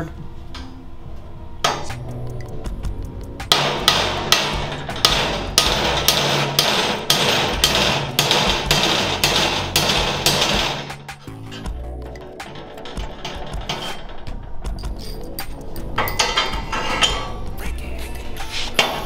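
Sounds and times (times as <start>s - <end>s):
hammer striking metal bolt: 3.4s - 17.3s.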